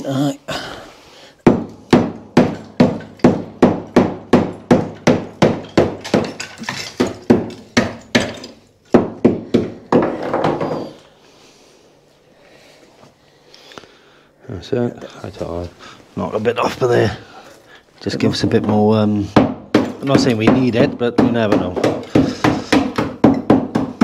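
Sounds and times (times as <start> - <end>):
hammer striking concrete: 1.4 - 11.0, 18.6 - 24.0.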